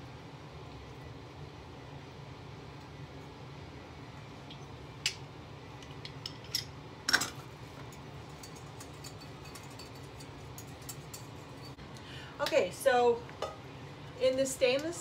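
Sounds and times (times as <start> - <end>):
utensils clinking on glass bowl: 8.4 - 11.8.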